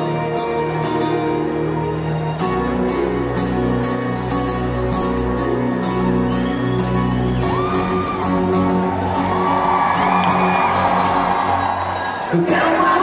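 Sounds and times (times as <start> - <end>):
live band playing ballad: 0.0 - 13.0
crowd cheering: 5.7 - 13.0.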